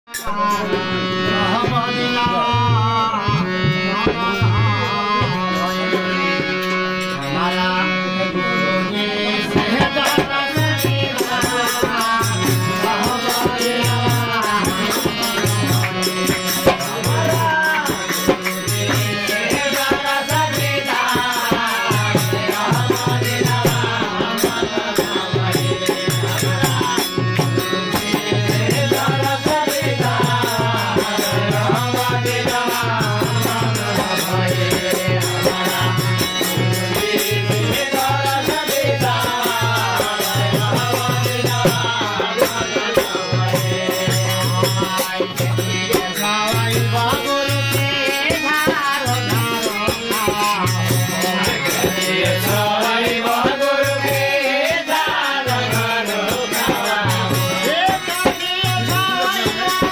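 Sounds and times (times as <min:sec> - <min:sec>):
harmonium playing held notes: 0:00.1 - 0:59.9
man singing: 0:00.1 - 0:59.9
drum beat: 0:09.6 - 0:54.0.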